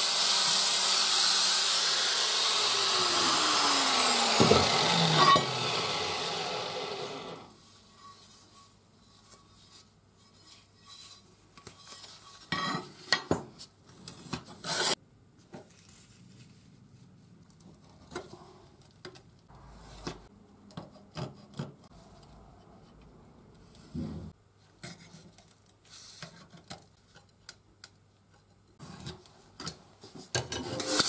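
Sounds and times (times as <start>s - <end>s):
metal scraping on workbench: 4.5s - 5.5s, 30.5s - 31.0s.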